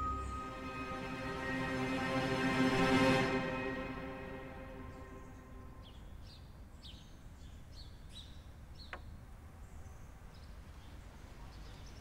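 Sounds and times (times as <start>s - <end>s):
small birds chirping: 5.2s - 12.0s.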